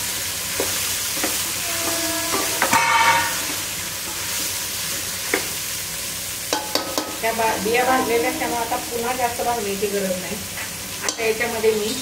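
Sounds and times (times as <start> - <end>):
vegetables sizzling in a pot: 0.0 - 12.0
spoon scraping a metal pot: 1.2 - 4.2.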